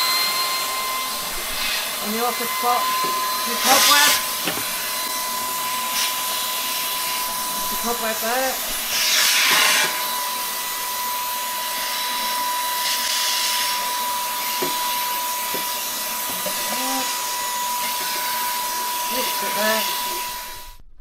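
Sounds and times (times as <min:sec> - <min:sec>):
vacuum cleaner running: 0:00.0 - 0:20.9.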